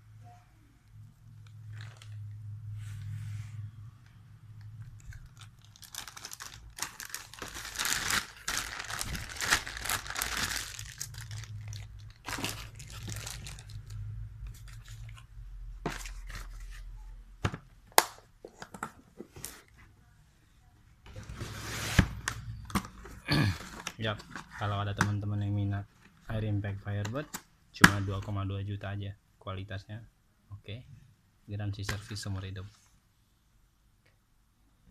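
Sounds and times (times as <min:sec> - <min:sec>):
low steady hum: 0:00.0 - 0:34.9
foam and plastic rustling: 0:05.0 - 0:14.0.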